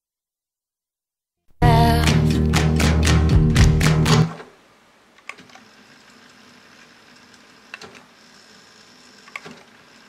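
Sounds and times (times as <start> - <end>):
cassette tape rewinding whir: 5.4 - 10.0.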